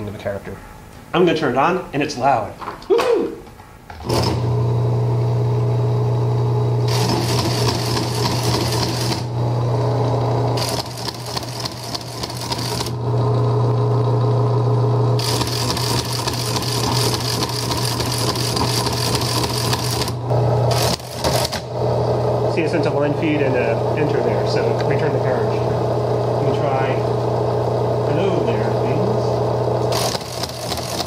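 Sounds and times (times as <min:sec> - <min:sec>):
printer motor humming: 0:04.0 - 0:31.0
typing mechanism clattering: 0:29.9 - 0:31.0.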